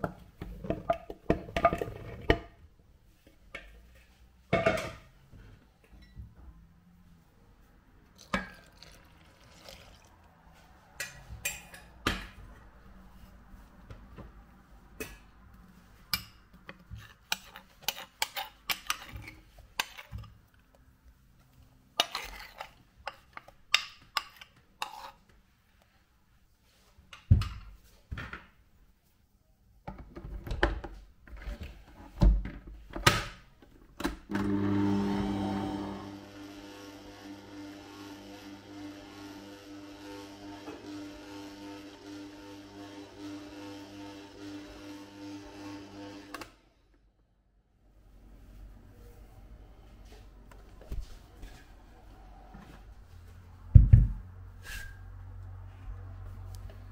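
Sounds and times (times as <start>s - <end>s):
small electric motor humming: 34.5s - 46.4s.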